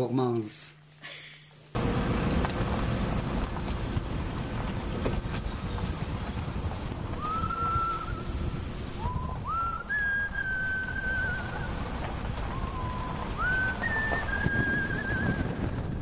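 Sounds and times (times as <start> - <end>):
low background rumble: 1.2 - 16.0
person whistling a slow tune: 7.2 - 8.3, 9.0 - 11.6, 12.5 - 15.6.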